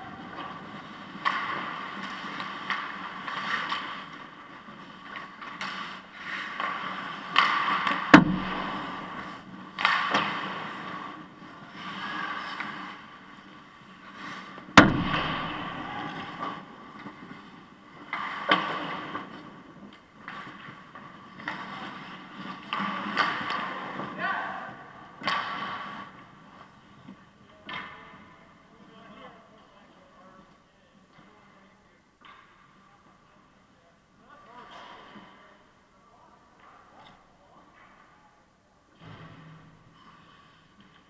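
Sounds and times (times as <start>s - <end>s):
skate blades scraping ice: 0.0s - 27.3s.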